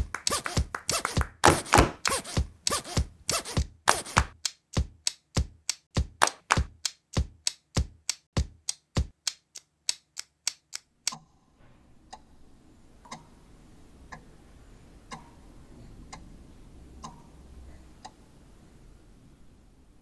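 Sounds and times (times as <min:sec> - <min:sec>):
rapid sharp knocks: 0:00.0 - 0:09.3.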